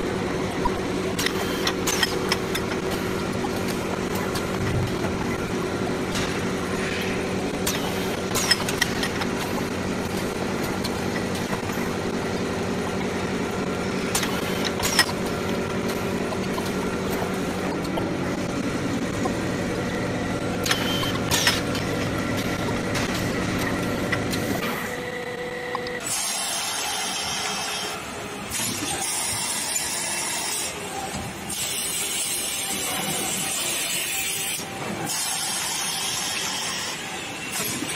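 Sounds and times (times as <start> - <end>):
machine humming: 0.0 - 29.2
sharp machine clacks: 1.1 - 3.1.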